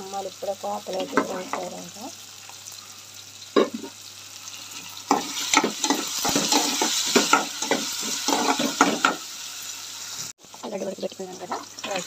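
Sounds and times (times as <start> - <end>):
vegetables sizzling in oil: 0.0 - 12.0
spoon scraping pan: 5.1 - 9.2.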